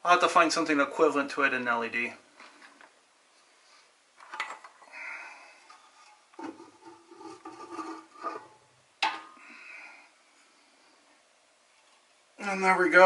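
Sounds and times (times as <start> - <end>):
lamp parts rattling and rubbing: 4.2 - 4.8, 5.6 - 9.3.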